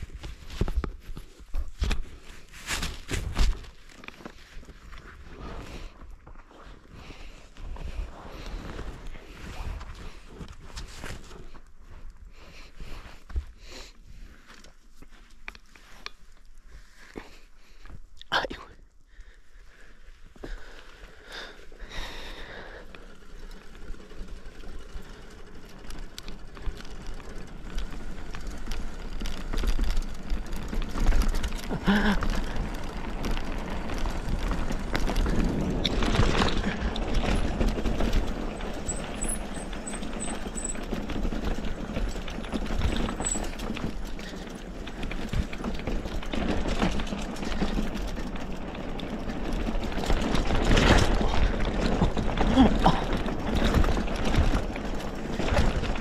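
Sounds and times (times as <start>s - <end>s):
bike tyres on rough ground: 0.0s - 56.0s
bike clattering over bumps: 20.4s - 56.0s.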